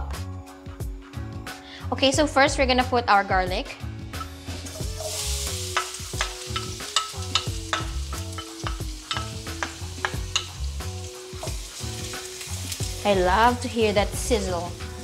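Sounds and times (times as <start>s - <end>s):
background music: 0.0s - 15.0s
garlic sizzling in hot oil: 4.1s - 15.0s.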